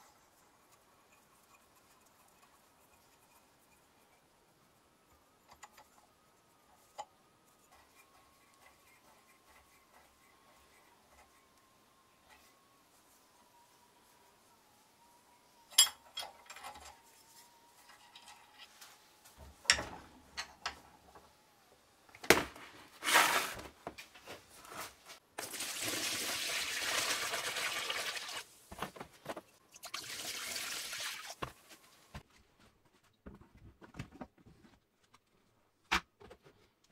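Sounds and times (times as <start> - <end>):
liquid pouring into plastic tub: 25.4 - 28.4.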